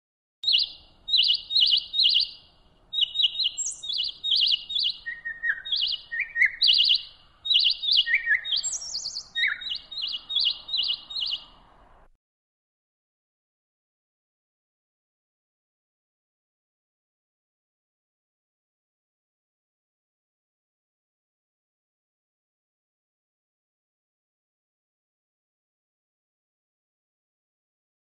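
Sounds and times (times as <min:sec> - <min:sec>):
magpie chattering: 0:00.5 - 0:02.4, 0:03.0 - 0:11.4.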